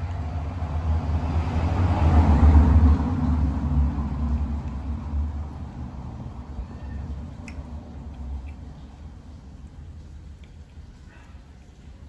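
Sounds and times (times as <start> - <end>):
vehicle passing by: 0.0 - 9.4.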